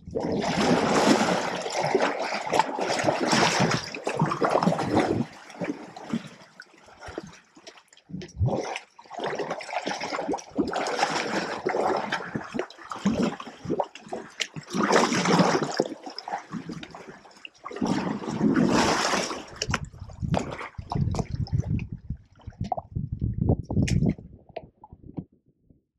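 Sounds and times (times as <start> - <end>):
elephant trunks sucking and splashing water: 0.2 - 7.3, 8.3 - 21.7.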